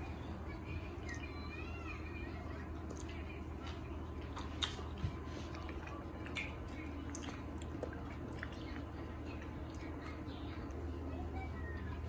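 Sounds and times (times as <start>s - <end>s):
low room hum: 0.0s - 12.0s
toddler chewing: 2.6s - 12.0s.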